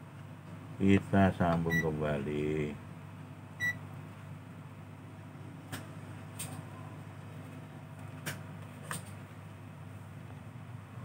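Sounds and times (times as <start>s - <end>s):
steady low hum: 0.0s - 11.0s
multimeter beep: 1.7s - 1.9s, 3.6s - 3.8s.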